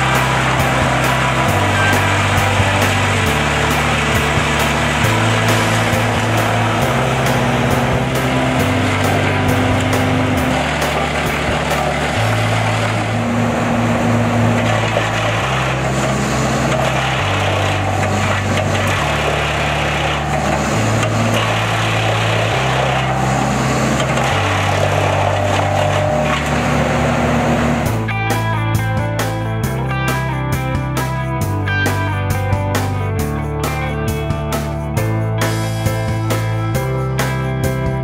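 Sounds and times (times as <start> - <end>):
wood chipper chipping a log: 0.0 - 28.1
background music with bass line: 0.0 - 38.0.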